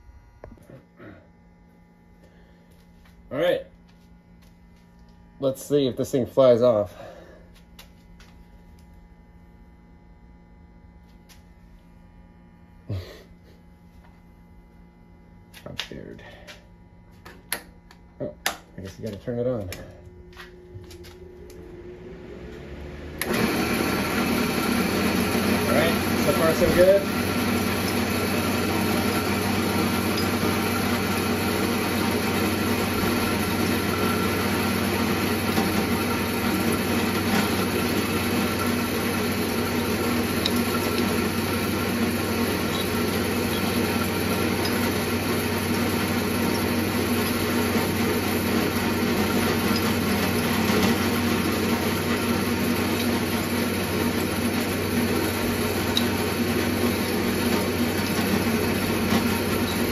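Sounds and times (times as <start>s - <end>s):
drill press running: 19.0s - 59.9s
cutter working aluminium plate: 23.0s - 59.9s.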